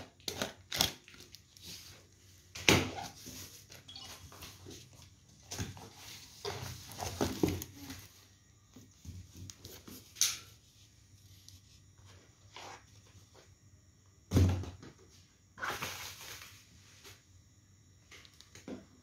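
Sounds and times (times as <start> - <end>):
cardboard and bubble wrap rustling: 0.0 - 10.2.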